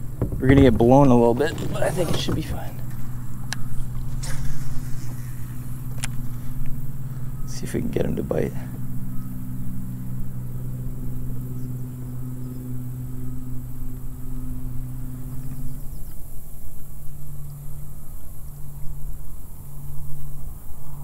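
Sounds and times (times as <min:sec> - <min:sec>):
low motor hum: 0:00.0 - 0:21.0.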